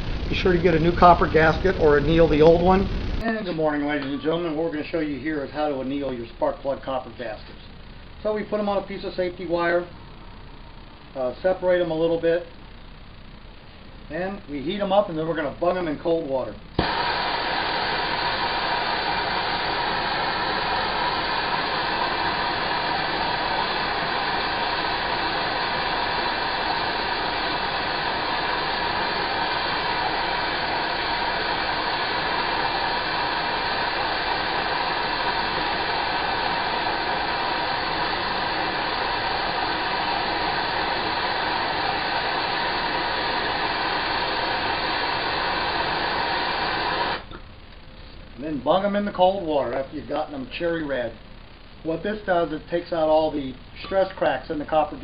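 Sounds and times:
gas torch hissing: 0.0 - 5.8, 16.7 - 47.4.

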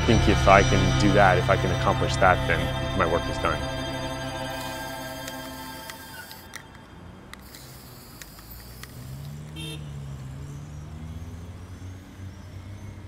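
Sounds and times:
traffic rumble: 0.0 - 13.0
horn toot: 9.5 - 9.9.

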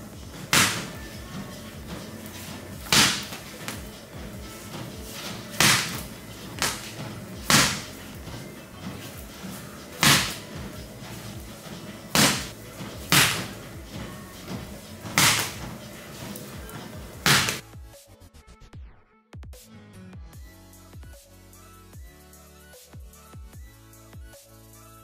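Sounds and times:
background music: 0.0 - 25.0
medicine ball thudding on floor: 0.3 - 2.0, 2.8 - 9.0, 10.0 - 10.8, 12.1 - 15.7, 17.2 - 17.6.

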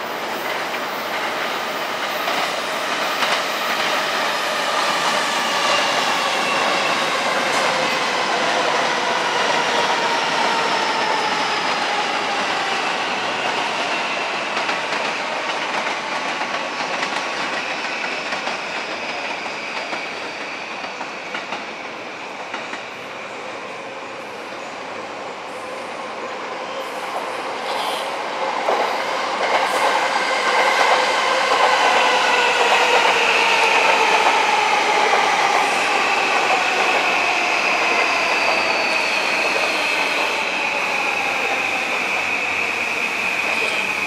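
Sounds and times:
train wheels clattering over rails: 0.3 - 12.8, 13.4 - 21.7.

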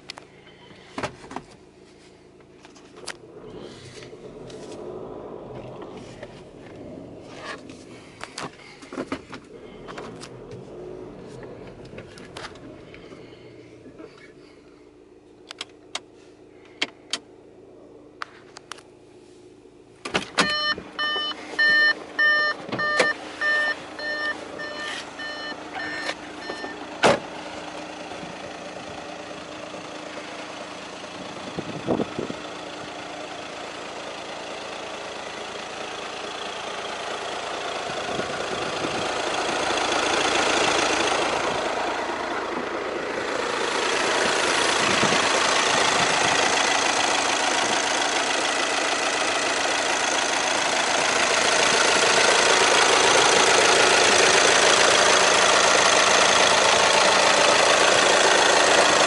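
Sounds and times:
car door shutting: 20.0 - 27.4
car warning beeps: 20.4 - 27.0.

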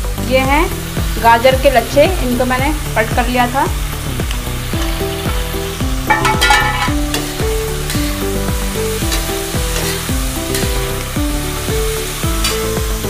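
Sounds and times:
background music with beat: 0.0 - 13.0
vegetables sizzling in hot oil: 0.0 - 13.0
metal spatula scraping pan: 6.1 - 8.2, 9.1 - 11.0.

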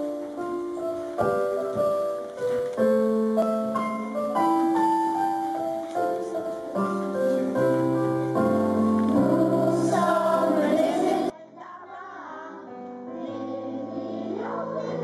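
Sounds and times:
slow piano melody: 0.0 - 11.3.

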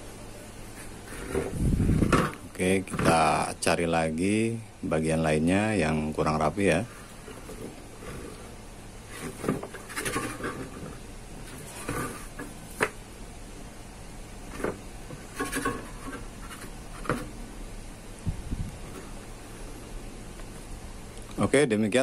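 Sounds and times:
soft handling rubs and knocks: 0.6 - 3.2, 6.8 - 13.0, 14.4 - 17.5, 18.8 - 19.6.

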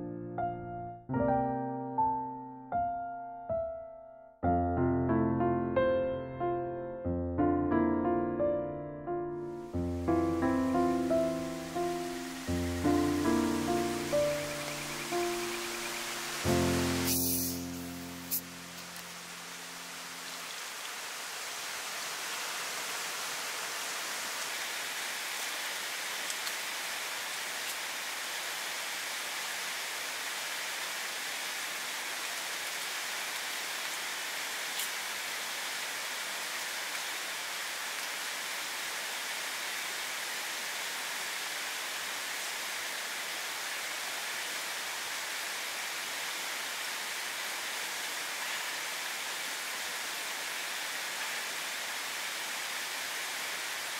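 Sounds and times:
light rain falling: 8.8 - 53.9
raindrop ticks: 26.2 - 26.6.

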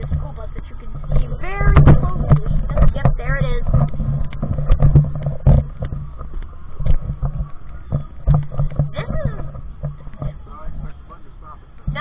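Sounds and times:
camera handling knocks and rubs: 0.9 - 10.4.

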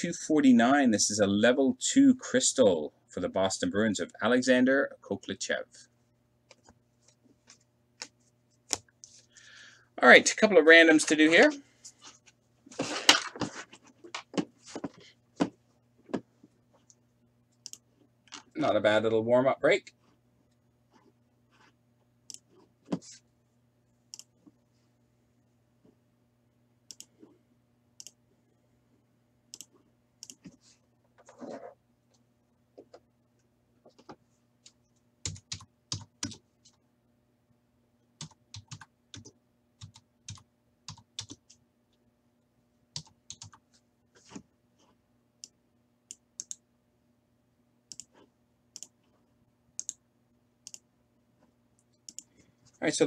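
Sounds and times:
low steady hum: 0.0 - 53.0
keyboard typing: 35.2 - 36.8, 38.2 - 41.6, 43.0 - 43.6, 49.8 - 50.0
mouse clicks: 50.6 - 50.8.

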